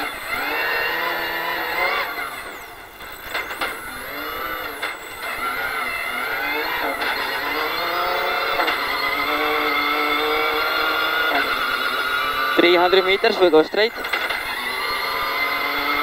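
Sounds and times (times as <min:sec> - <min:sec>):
car engine accelerating hard: 0:00.0 - 0:16.0.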